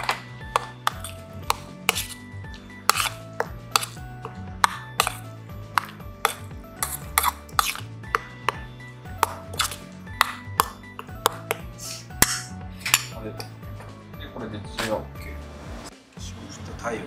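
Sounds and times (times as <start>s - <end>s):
metal spoon scraping steel bowl: 0.0s - 13.2s
background music: 0.0s - 17.0s.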